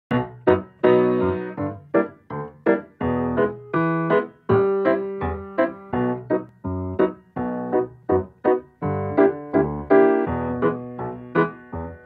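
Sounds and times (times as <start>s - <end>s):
piano music: 0.1s - 12.0s.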